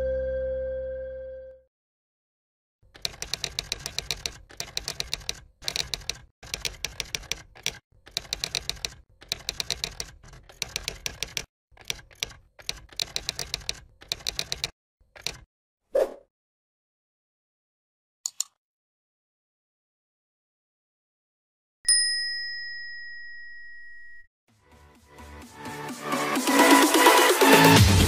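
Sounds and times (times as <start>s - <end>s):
keyboard typing clicks: 2.9s - 15.5s.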